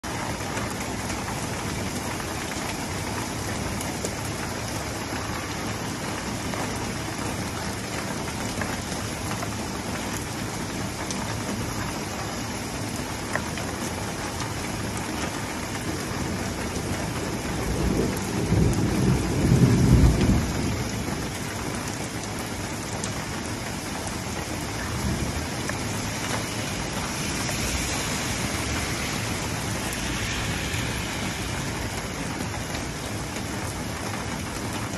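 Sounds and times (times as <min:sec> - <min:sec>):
rain falling on pavement: 0:00.0 - 0:34.9
car tyres hissing on wet road: 0:00.1 - 0:34.9
low roll of thunder: 0:16.1 - 0:22.9, 0:24.7 - 0:34.9.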